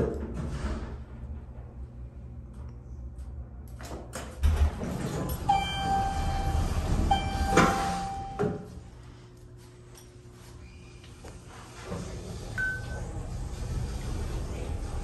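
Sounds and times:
elevator doors sliding open: 4.2s - 8.4s, 11.8s - 15.0s
elevator door clunk: 4.2s - 8.7s
steady high elevator tone: 4.4s - 15.0s.

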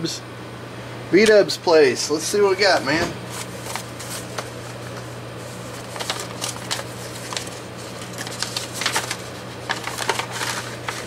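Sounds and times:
steady low hum: 0.0s - 11.0s
envelope paper tearing: 3.3s - 11.0s.

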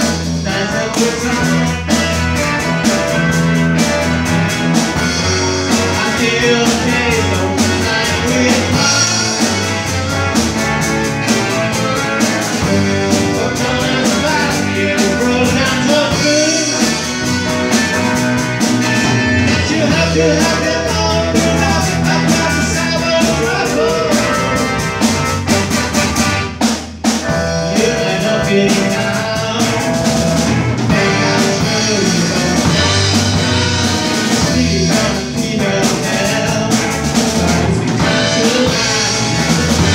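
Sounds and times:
man singing into a microphone: 0.0s - 2.4s, 5.7s - 9.7s, 12.6s - 17.1s, 19.5s - 24.7s, 27.5s - 30.3s, 30.9s - 39.9s
drum kit: 0.0s - 39.9s
electric guitar: 0.0s - 39.9s.

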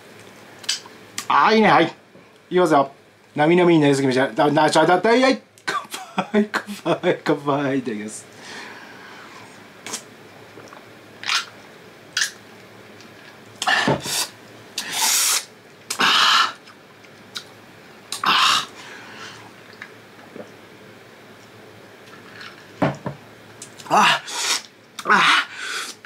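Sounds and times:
man slurping and gulping: 9.4s - 11.5s, 13.1s - 20.6s.

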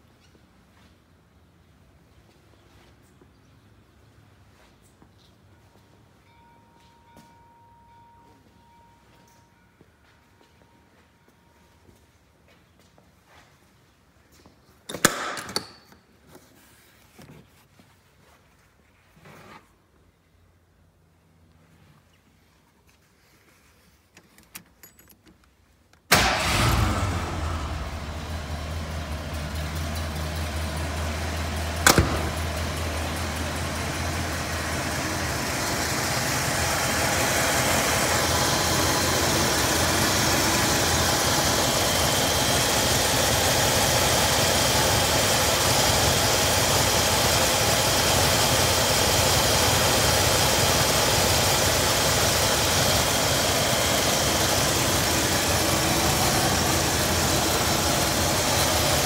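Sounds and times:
car engine starting and idling: 26.1s - 59.0s
sharp bang: 31.8s - 32.5s.

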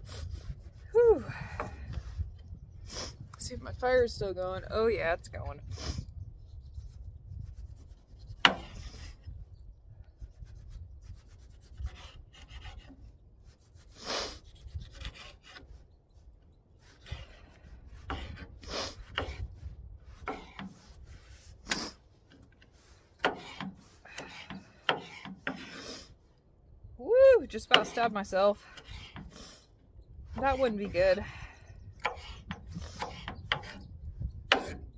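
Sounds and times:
wind rumbling on microphone: 0.0s - 25.0s, 26.2s - 34.9s.

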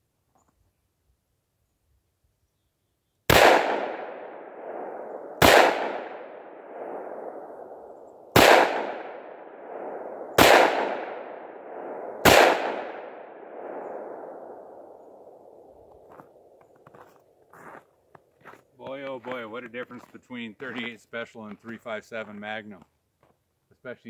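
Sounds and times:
revolver shots with echo: 3.3s - 7.8s, 8.4s - 15.0s.

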